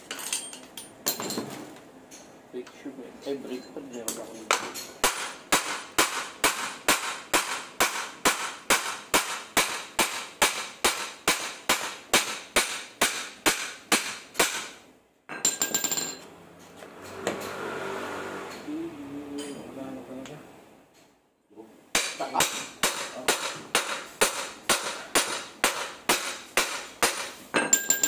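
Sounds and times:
hammer striking metal: 4.5s - 16.3s, 21.9s - 28.0s.

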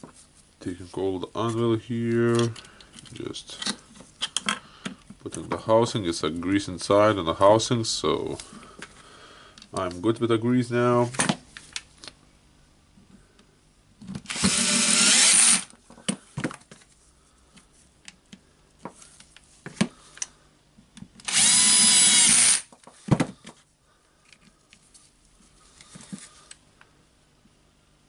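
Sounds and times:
clicks and knocks of handled parts: 2.3s - 5.7s, 24.2s - 25.0s
cordless drill whining: 14.3s - 15.7s, 21.2s - 22.7s.

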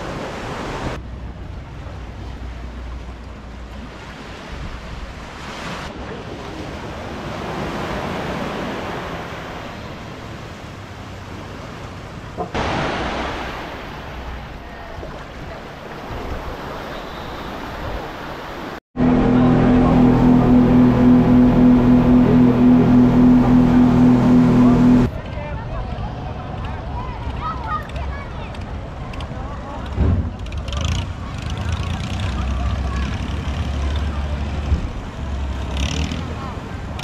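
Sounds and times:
surf washing onto sandy beach: 12.5s - 20.0s.

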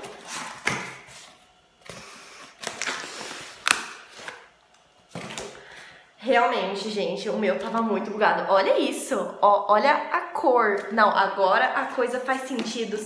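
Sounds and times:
cardboard rustling and scraping: 0.0s - 1.5s.

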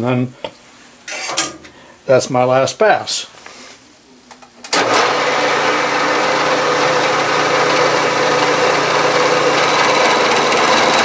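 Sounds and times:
milling machine cutting metal: 4.8s - 11.0s.

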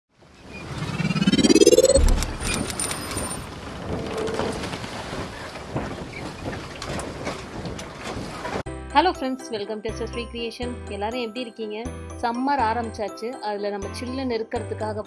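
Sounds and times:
rising whoosh: 0.5s - 3.3s
low boom: 0.8s - 2.7s.

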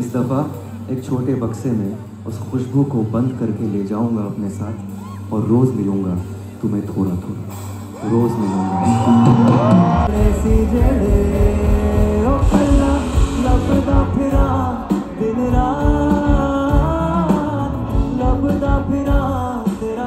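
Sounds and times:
live band playing: 0.0s - 20.0s
person singing: 9.2s - 20.0s.

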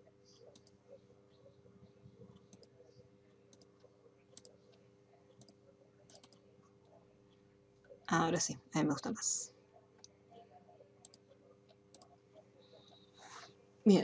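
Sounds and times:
faint steady hum: 0.0s - 14.0s
computer mouse clicks: 0.4s - 0.8s, 2.3s - 2.8s, 3.5s - 4.6s, 5.3s - 6.4s, 11.0s - 12.1s.

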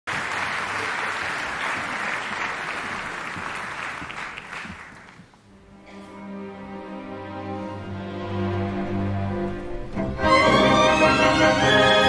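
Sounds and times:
audience applause: 0.1s - 5.4s.

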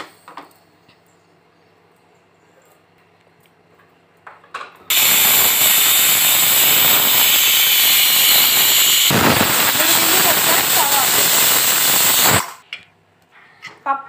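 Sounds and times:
pressure cooker whistling steam: 4.9s - 12.6s.

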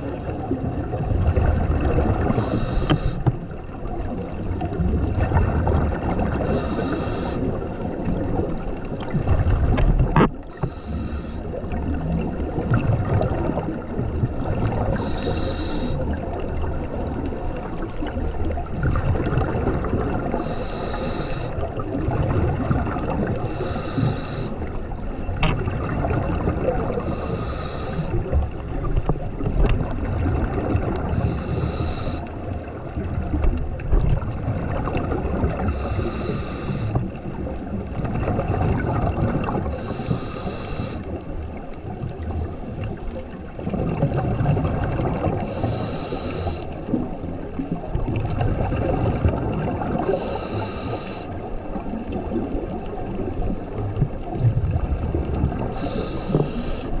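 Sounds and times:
rumble of bubbles and water: 0.0s - 57.0s
diver breathing through regulator: 2.2s - 3.5s, 6.4s - 8.2s, 10.4s - 11.7s, 14.8s - 16.2s, 20.3s - 24.8s, 26.8s - 29.3s, 31.0s - 32.4s, 35.5s - 37.2s, 39.5s - 41.2s, 45.2s - 46.9s, 49.9s - 51.4s, 55.6s - 57.0s.

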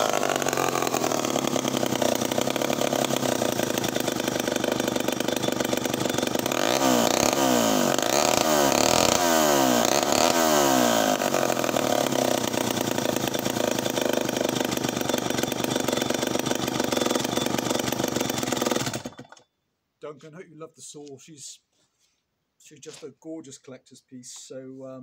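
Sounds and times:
chainsaw revving and idling: 0.0s - 19.4s.

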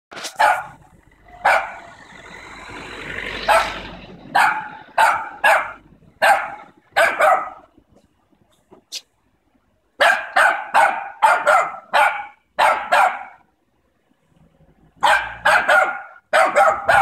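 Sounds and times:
small dogs barking: 0.2s - 2.0s, 3.4s - 7.7s, 10.0s - 13.4s, 15.0s - 17.0s
car passing: 0.2s - 8.1s, 9.2s - 17.0s.

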